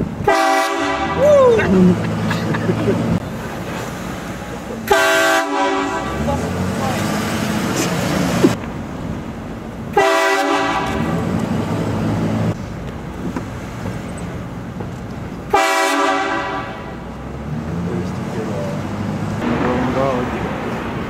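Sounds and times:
truck engine and road noise: 0.0s - 21.0s
train horn blasting: 0.2s - 1.2s, 4.9s - 6.2s, 10.0s - 11.1s, 15.5s - 16.9s.

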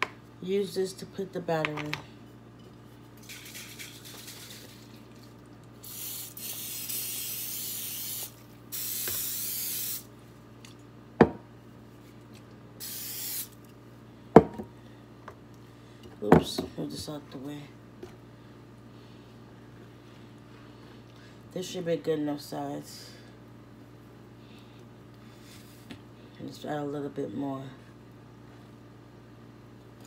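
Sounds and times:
aerosol spray hissing: 5.8s - 10.1s, 12.8s - 13.6s.

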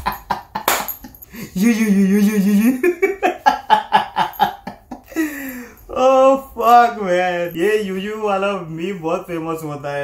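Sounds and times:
man laughing hard: 0.0s - 5.5s.

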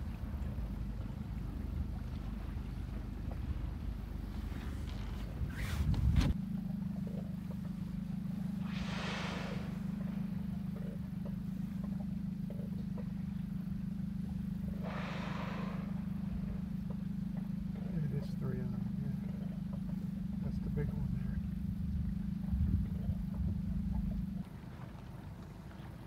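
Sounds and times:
boat motor humming: 0.0s - 26.0s
whale blows: 8.3s - 13.2s, 14.6s - 17.8s.

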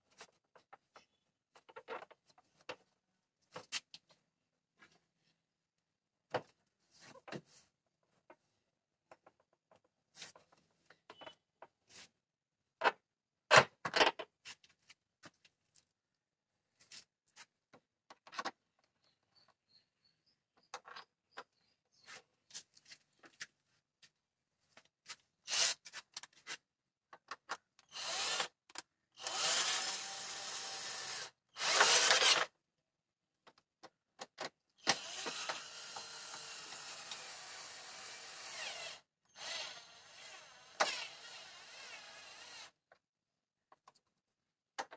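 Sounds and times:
plastic parts clicking and knocking: 0.2s - 4.2s, 9.0s - 11.8s, 12.8s - 14.4s, 17.7s - 19.0s, 20.5s - 21.5s, 25.9s - 27.9s, 28.5s - 29.0s, 33.4s - 37.2s, 43.7s - 44.9s.

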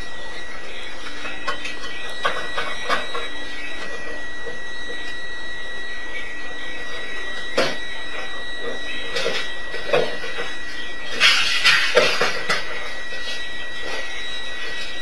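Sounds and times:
high-pitched electronic alarm tone: 0.0s - 15.0s.

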